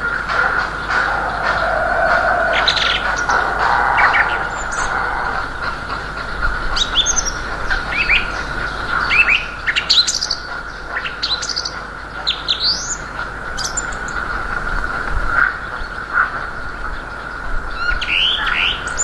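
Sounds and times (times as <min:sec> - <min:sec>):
steady hum: 0:00.0 - 0:12.4
low wind rumble: 0:00.0 - 0:19.0
small songbirds chirping: 0:00.0 - 0:19.0.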